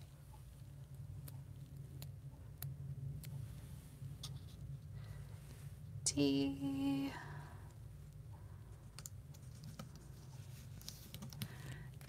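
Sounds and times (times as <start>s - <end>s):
low steady hum: 0.0s - 12.0s
fingers handling paper letters: 8.1s - 12.0s.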